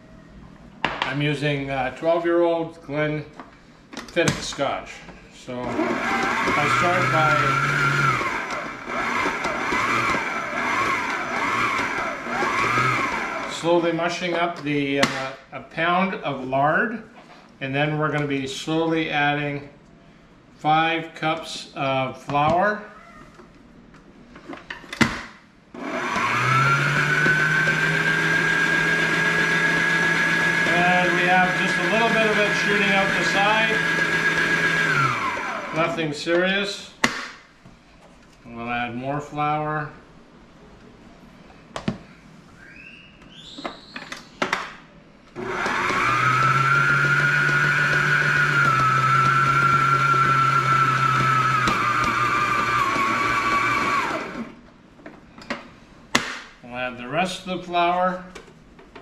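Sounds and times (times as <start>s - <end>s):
stand mixer motor whining: 5.6s - 13.6s, 25.8s - 36.0s, 45.4s - 54.6s.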